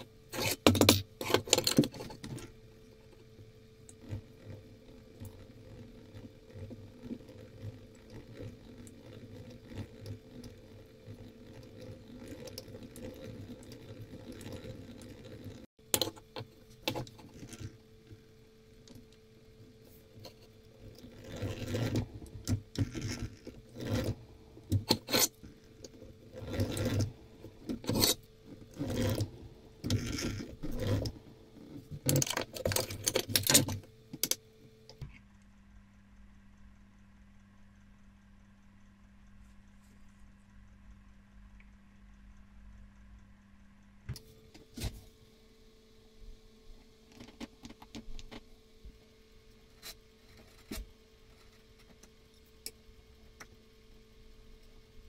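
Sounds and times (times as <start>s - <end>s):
countersink bit grinding brass: 20.3s - 33.9s.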